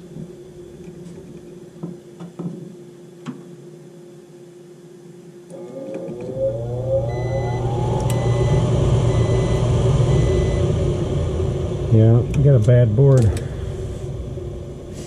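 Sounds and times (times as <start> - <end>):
furnace motor whining: 5.4 - 15.0.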